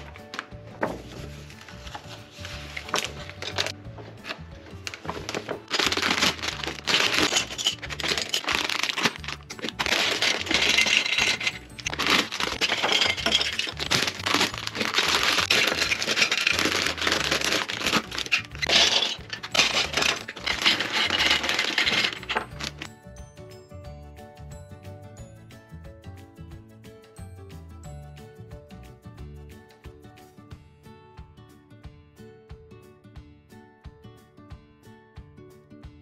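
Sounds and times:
plastic pieces tipped out: 0:00.0 - 0:22.9
background music: 0:00.0 - 0:36.0
plastic bags crinkling: 0:01.1 - 0:22.9.

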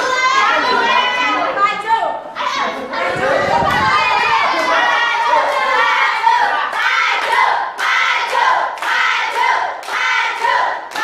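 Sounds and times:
group chanting in unison: 0:02.4 - 0:11.0.

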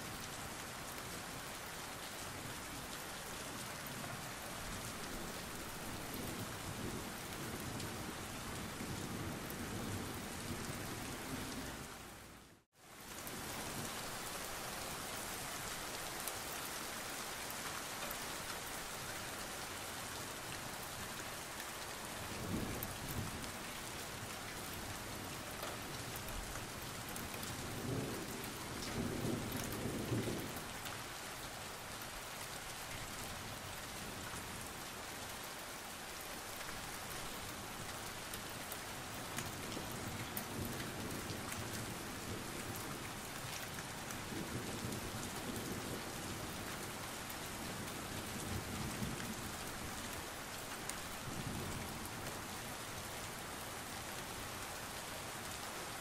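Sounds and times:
rain on hard surfaces: 0:00.0 - 0:56.0.

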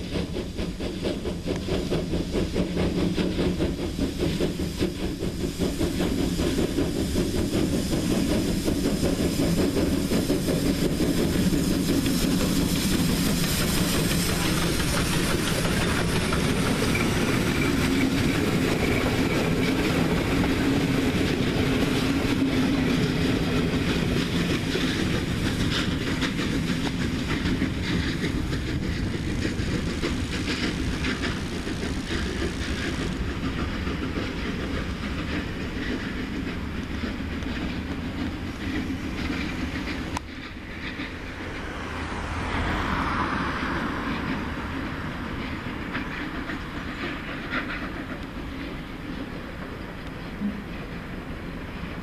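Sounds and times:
train rumbling away: 0:00.0 - 0:52.0
wheels clacking over rail joints: 0:00.1 - 0:52.0.

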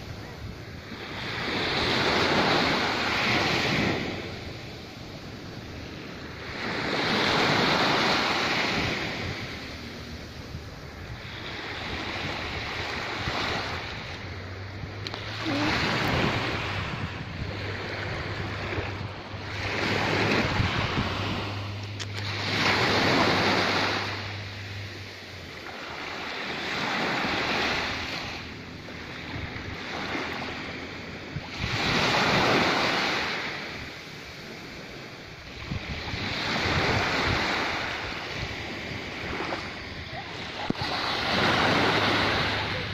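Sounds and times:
small waves breaking on beach: 0:00.0 - 0:42.9.

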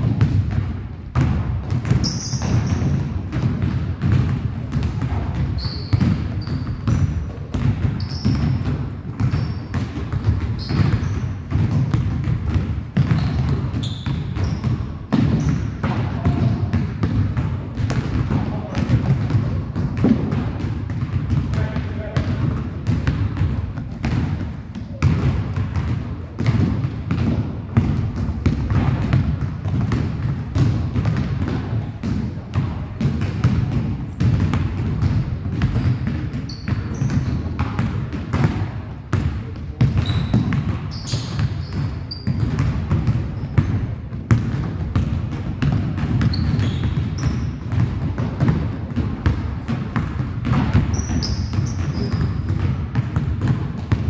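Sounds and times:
basketballs bouncing on wood floor: 0:00.0 - 0:54.0
sneakers squeaking: 0:00.0 - 0:54.0.

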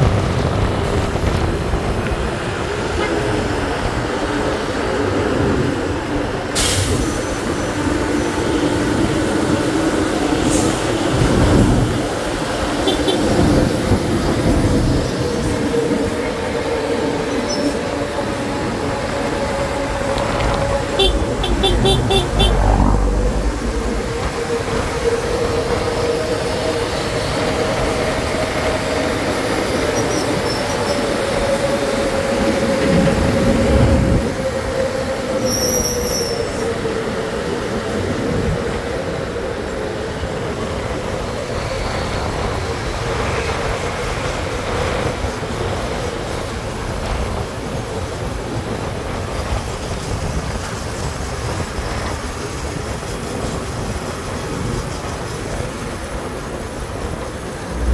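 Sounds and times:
wind and road noise: 0:00.0 - 0:57.9
deep rumble: 0:20.2 - 0:24.9, 0:57.6 - 0:57.9.

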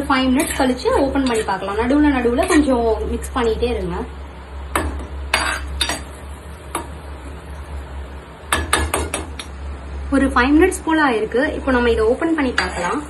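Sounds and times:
pan sizzling: 0:00.0 - 0:13.0
metal spoon scraping a pan: 0:00.2 - 0:02.8, 0:05.3 - 0:06.2, 0:12.2 - 0:13.0.

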